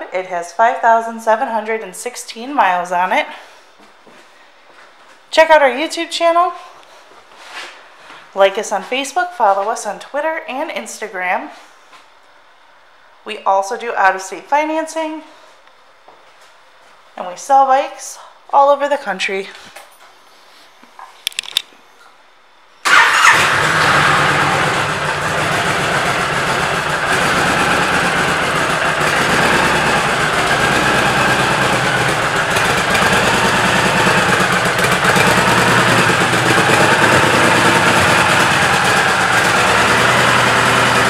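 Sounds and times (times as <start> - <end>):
motorcycle engine starting and idling: 22.8 - 41.0.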